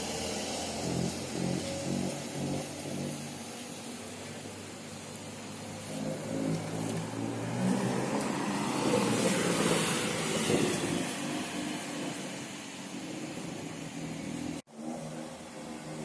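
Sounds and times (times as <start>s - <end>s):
sports car engine passing by: 0.0s - 16.0s.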